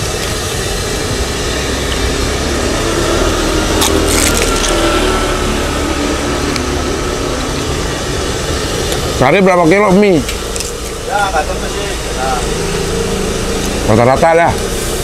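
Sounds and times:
street traffic: 0.0 - 15.0
crunchy bite into fried food: 3.7 - 5.0.

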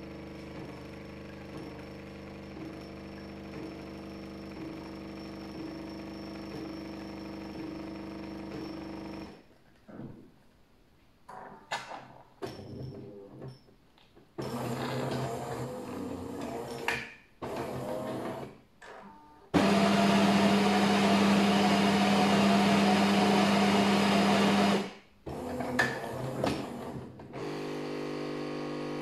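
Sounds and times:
espresso machine motor running: 0.0 - 9.3, 14.4 - 16.9, 19.6 - 29.0.

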